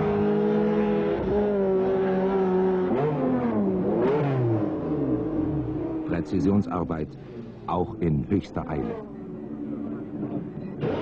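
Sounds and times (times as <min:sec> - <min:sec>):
racing car engine revving: 0:00.0 - 0:06.4, 0:08.6 - 0:11.0.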